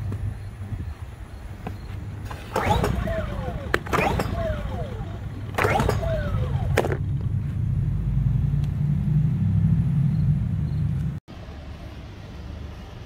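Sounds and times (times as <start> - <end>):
low engine rumble: 0.0 - 13.0
recoil starter rope whir: 1.9 - 10.1.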